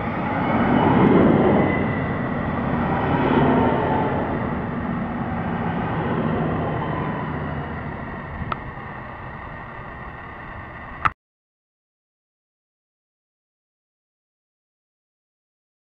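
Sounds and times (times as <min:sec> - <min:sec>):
diesel railcar engine and wheels: 0:00.0 - 0:11.2.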